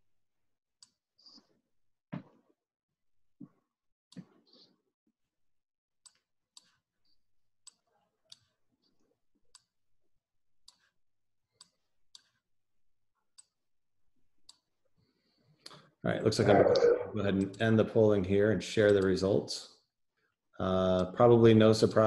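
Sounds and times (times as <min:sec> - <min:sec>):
faint sharp clicks: 0:18.8 - 0:19.2.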